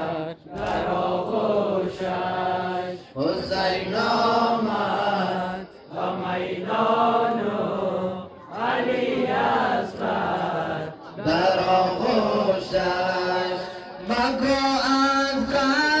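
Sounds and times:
man chanting a lament: 2.8s - 5.6s, 10.6s - 16.0s.

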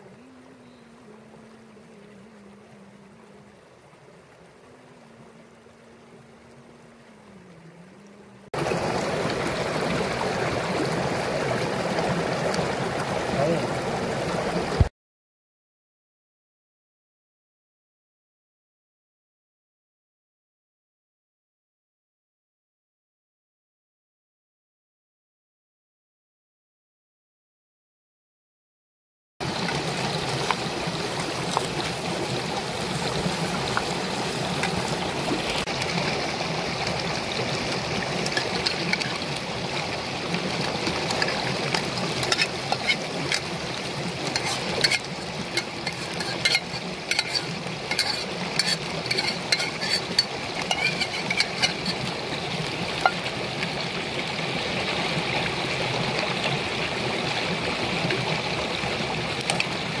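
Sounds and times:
river water rushing over rocks: 0.0s - 14.9s, 29.4s - 60.0s
metal spoon clinking on pots: 44.3s - 52.0s.

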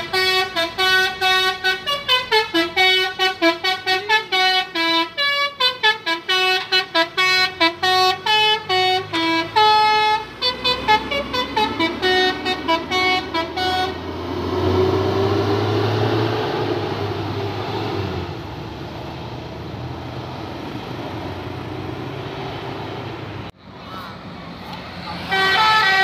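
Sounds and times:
bus musical horn melody: 0.0s - 14.1s, 25.2s - 26.0s
bus engine running: 0.0s - 26.0s
road traffic noise: 0.0s - 26.0s.

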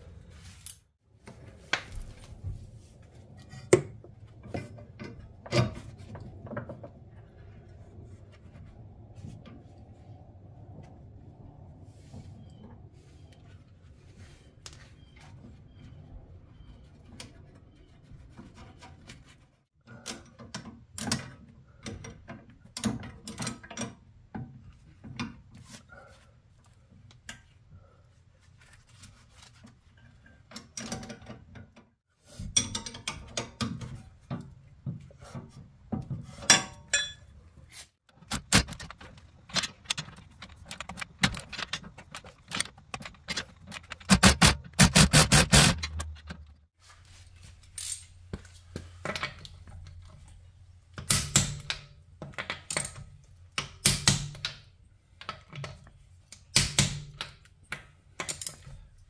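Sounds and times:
metal tools clinking: 38.2s - 46.5s.

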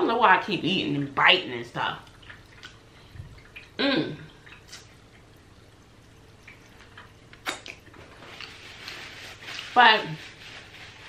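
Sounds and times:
person humming: 3.8s - 4.3s
mouth clicks from eating: 7.4s - 7.8s.

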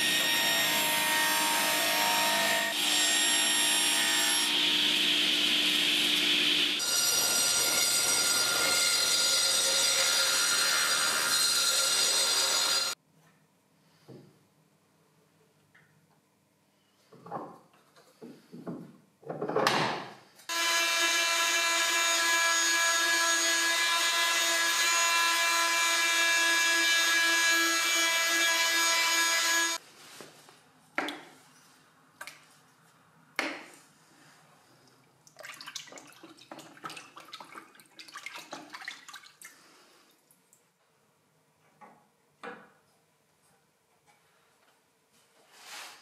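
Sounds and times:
electric power tool whining: 20.5s - 26.1s.

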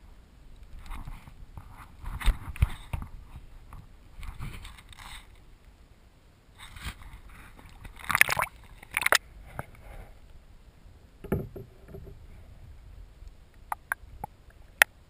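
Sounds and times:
camera dipping into water: 7.8s - 9.2s.

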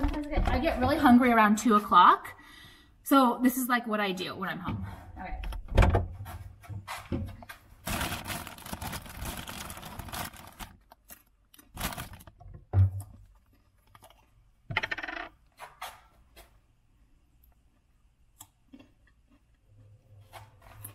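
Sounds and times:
items knocking and clattering: 0.0s - 1.3s, 11.8s - 13.4s, 14.7s - 15.8s
plastic bag rustling: 7.7s - 12.4s.

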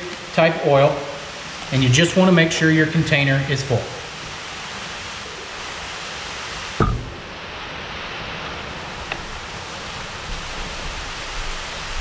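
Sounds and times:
background hiss: 0.0s - 12.0s
bottle knocking on wooden bench: 6.8s - 7.2s.

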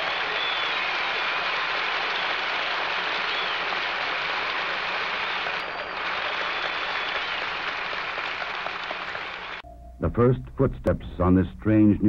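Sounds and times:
stadium crowd applauding: 0.0s - 9.6s.

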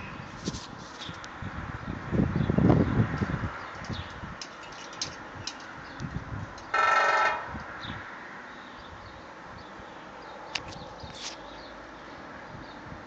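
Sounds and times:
woodpecker drumming on sheet metal: 3.7s - 7.6s.

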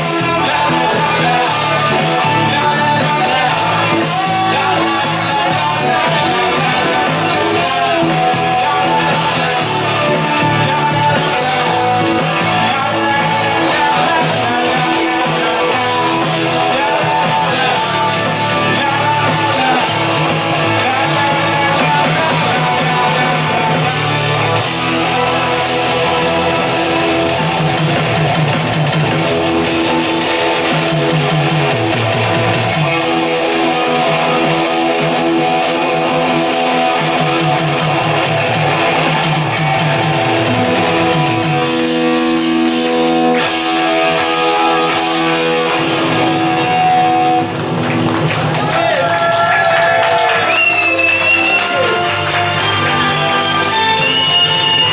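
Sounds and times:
electric guitar: 0.0s - 54.9s
live rock band playing: 0.0s - 54.9s.

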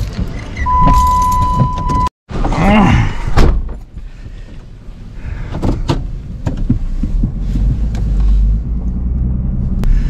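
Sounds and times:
vehicle rumble from inside cab: 3.7s - 10.0s.

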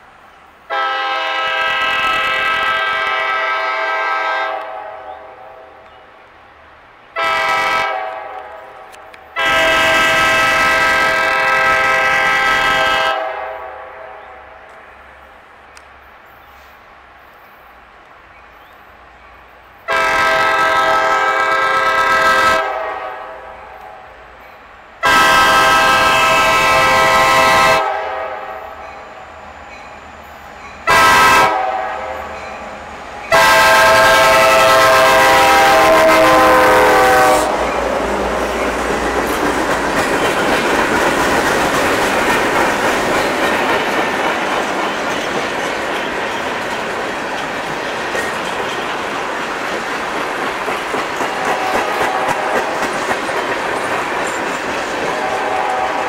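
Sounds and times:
train wheels rumbling on rail: 0.0s - 56.0s
locomotive air horn blasts: 0.7s - 5.8s, 7.2s - 8.7s, 9.4s - 14.2s, 19.9s - 24.2s, 25.0s - 29.2s, 30.8s - 32.7s, 33.3s - 38.0s, 51.4s - 52.6s, 55.1s - 56.0s.

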